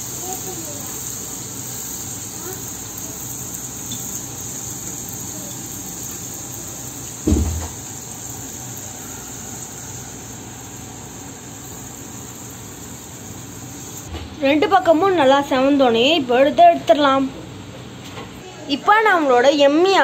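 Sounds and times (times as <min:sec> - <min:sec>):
oil sizzling in a pan: 0:00.0 - 0:14.1
low thump: 0:07.2 - 0:07.8.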